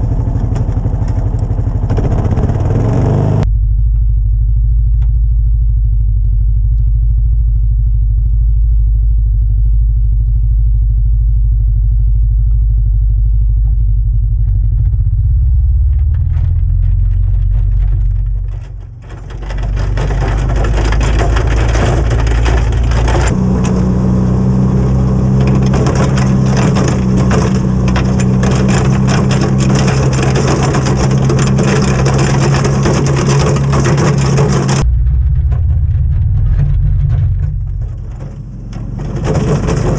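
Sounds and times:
atv engine rumble: 0:00.0 - 0:39.9
snow scraping along plow blade: 0:16.1 - 0:34.9, 0:36.2 - 0:39.9.

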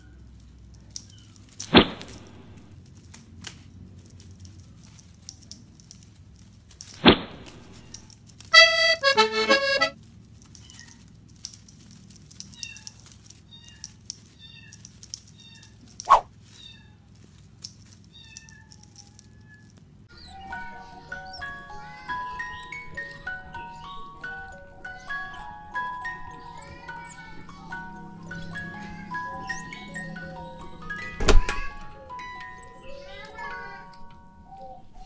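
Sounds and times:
faint high chirps: 0:20.1 - 0:35.0.

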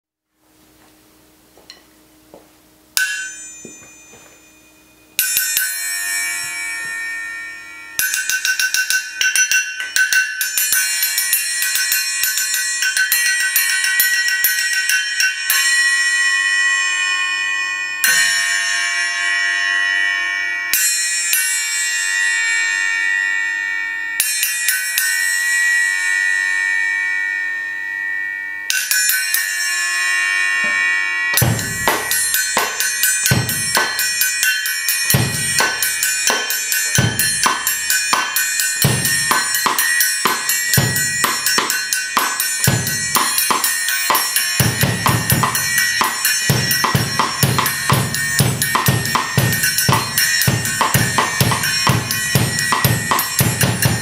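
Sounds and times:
bell-like cymbal ringing: 0:02.9 - 0:54.0
drum kit groove: 0:31.4 - 0:54.0.

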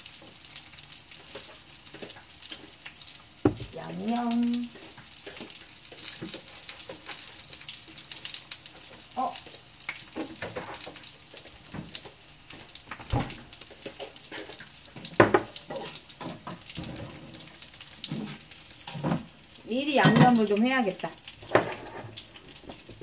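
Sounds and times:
dumplings sizzling in oil: 0:00.0 - 0:23.0
kitchen utensils clattering: 0:20.0 - 0:20.6.

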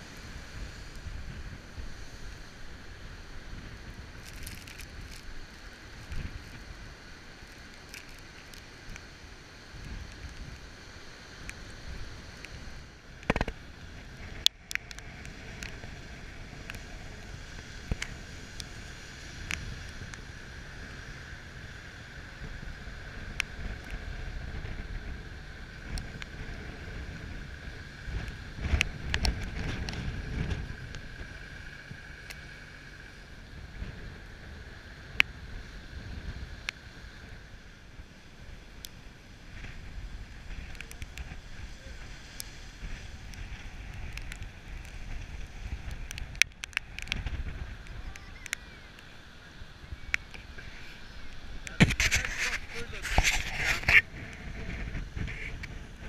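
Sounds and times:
wind buffeting microphone: 0:22.4 - 0:32.0, 0:39.4 - 0:48.8, 0:49.6 - 0:56.0.

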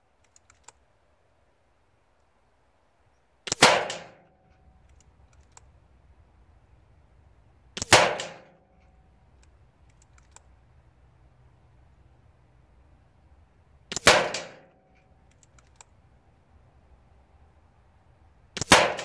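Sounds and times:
faint clicks: 0:00.2 - 0:00.8, 0:04.4 - 0:05.8, 0:08.7 - 0:10.6, 0:14.8 - 0:16.0
air rifle shots: 0:03.5 - 0:04.3, 0:07.8 - 0:08.6, 0:13.9 - 0:14.8, 0:18.6 - 0:19.0.

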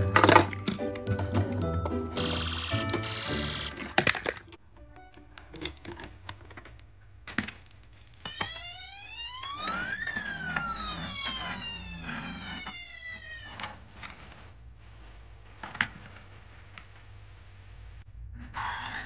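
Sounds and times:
police siren wail: 0:08.3 - 0:13.6.

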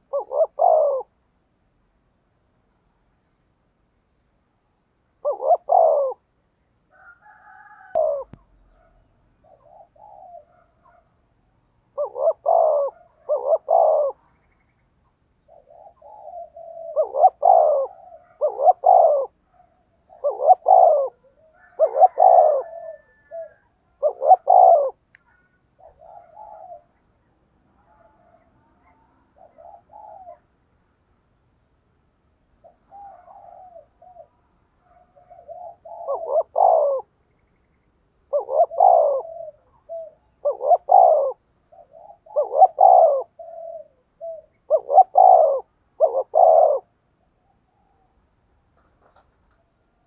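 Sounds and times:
dove cooing: 0:00.0 - 0:01.2, 0:05.1 - 0:11.2, 0:11.8 - 0:14.4, 0:15.4 - 0:27.2, 0:27.8 - 0:30.6, 0:32.6 - 0:37.2, 0:38.2 - 0:48.2.

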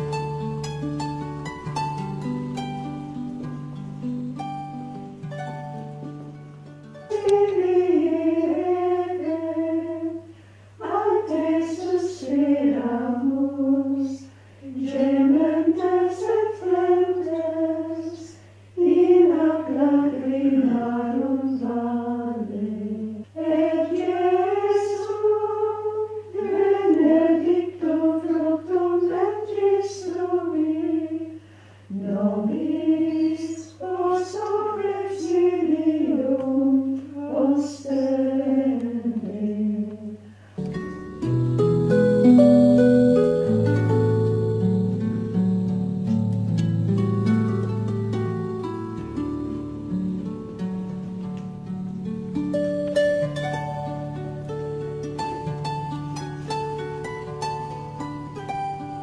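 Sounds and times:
women singing a hymn: 0:07.1 - 0:40.3.

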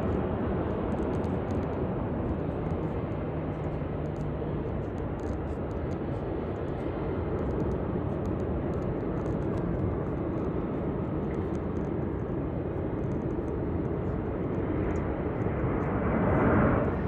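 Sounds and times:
distant jet engines rushing: 0:00.0 - 0:17.0.

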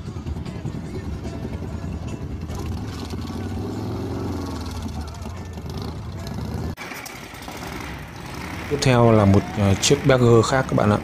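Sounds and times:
motorcycle engine revving hard: 0:02.5 - 0:11.0.

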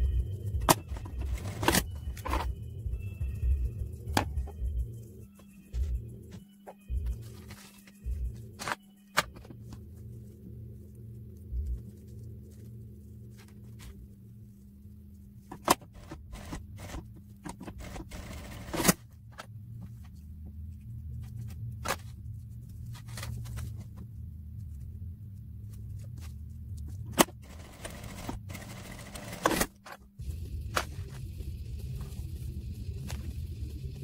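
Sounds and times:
steady low hum: 0:00.0 - 0:34.0
hands rustling fabric: 0:05.2 - 0:15.5.

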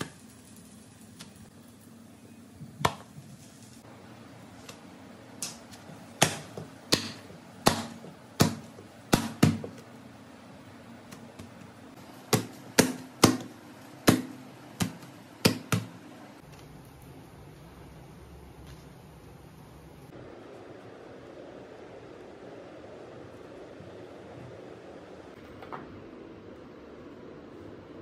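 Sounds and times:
hands slapping flatbreads: 0:02.6 - 0:03.5, 0:04.6 - 0:09.9, 0:11.1 - 0:16.6.

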